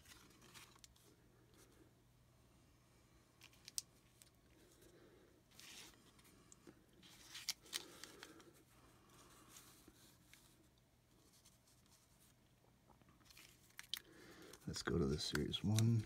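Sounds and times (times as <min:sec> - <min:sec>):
trading cards being handled: 0:05.5 - 0:06.4, 0:07.0 - 0:12.4, 0:13.2 - 0:16.0.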